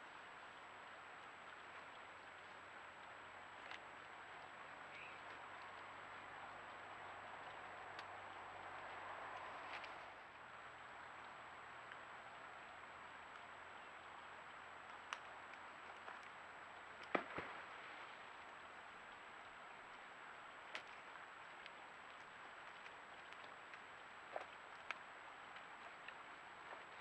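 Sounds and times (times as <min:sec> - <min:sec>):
faint steady hiss: 0:00.0 - 0:27.0.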